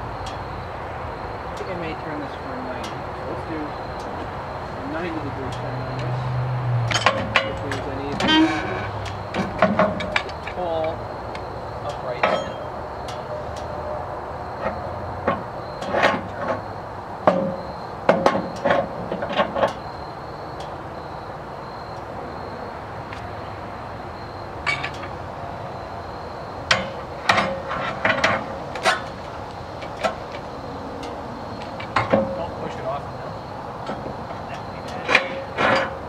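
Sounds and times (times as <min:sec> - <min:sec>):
metal clanks and knocks: 0:06.8 - 0:11.0, 0:11.9 - 0:13.3, 0:14.6 - 0:19.9, 0:24.6 - 0:25.2, 0:26.7 - 0:32.8, 0:33.8 - 0:36.0.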